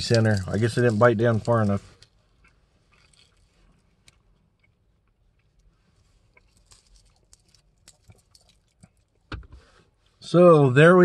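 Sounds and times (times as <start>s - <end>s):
chewing soft candy: 0.0s - 9.3s.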